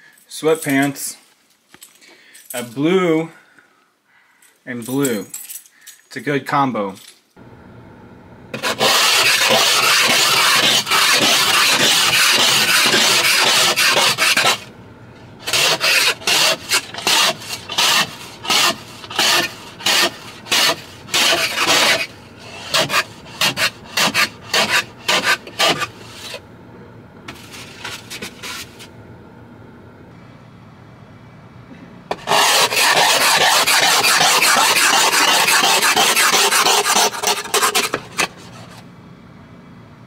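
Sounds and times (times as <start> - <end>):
ice scraper scraping windshield: 8.5 - 14.7, 15.3 - 26.4, 27.3 - 28.9, 32.1 - 38.8.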